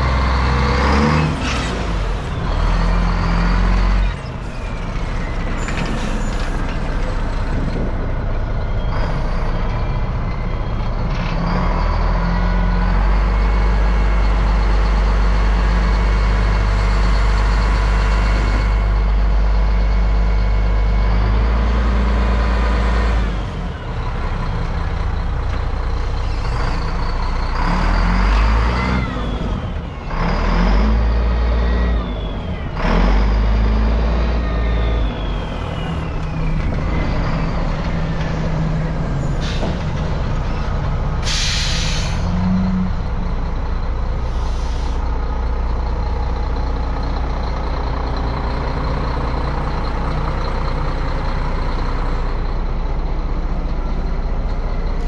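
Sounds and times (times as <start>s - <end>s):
truck diesel engine revving: 0.0s - 55.0s
air hiss bursts: 41.2s - 42.2s.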